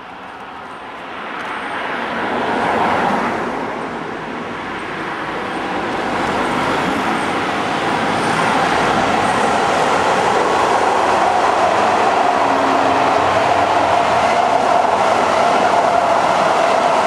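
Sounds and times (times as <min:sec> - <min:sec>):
diesel locomotive engines droning: 0:03.5 - 0:17.0.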